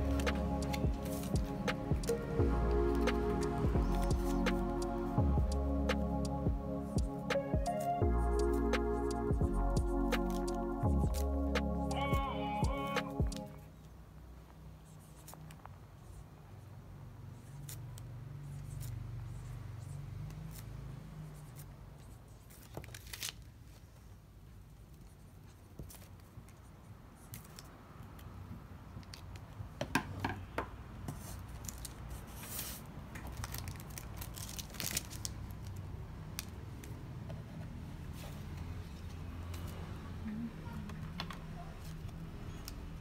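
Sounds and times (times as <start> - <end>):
pen scratching on card: 0.0 - 2.2, 2.8 - 4.9, 10.1 - 11.3
low steady hum: 0.0 - 14.2
wrapping paper crinkling: 31.5 - 35.8.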